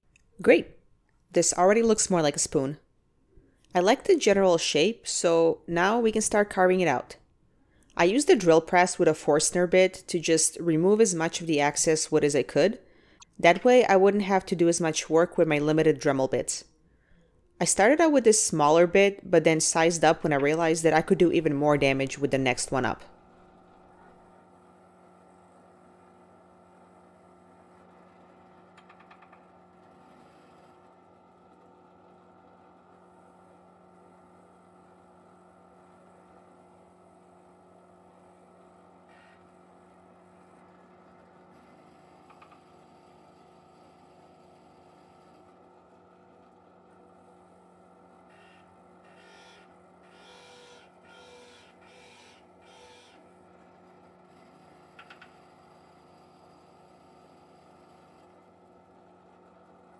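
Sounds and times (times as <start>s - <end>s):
drill press motor humming: 23.0s - 59.9s.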